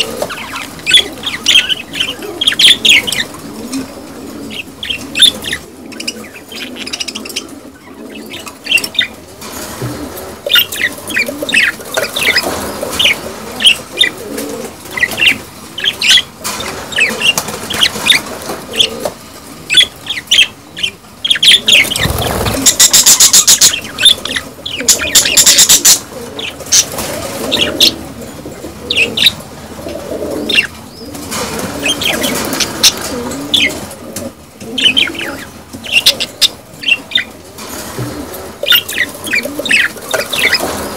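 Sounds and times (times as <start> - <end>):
budgerigars chirping and warbling: 0.0 - 3.4, 4.5 - 9.2, 10.5 - 14.2, 14.9 - 18.9, 19.7 - 26.9, 27.5 - 28.0, 28.9 - 29.4, 30.5 - 31.1, 31.8 - 33.8, 34.7 - 37.4, 38.6 - 40.8
rapid wing flapping: 21.9 - 23.5.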